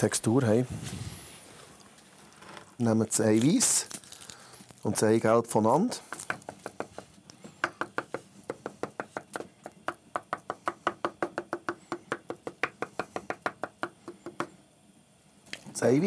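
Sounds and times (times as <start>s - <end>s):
knife chopping on wooden board: 7.6s - 14.5s.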